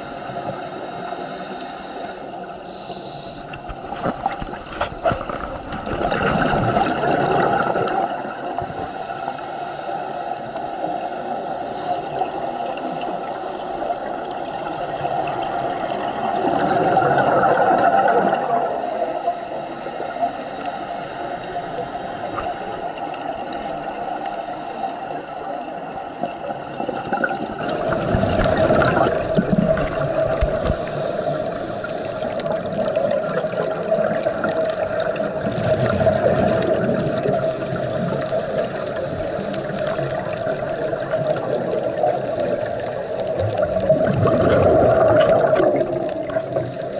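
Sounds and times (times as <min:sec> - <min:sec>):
underwater regulator breathing: 0:00.0 - 0:46.9
bubbles gurgling: 0:03.5 - 0:08.8, 0:12.0 - 0:18.8, 0:25.9 - 0:46.9.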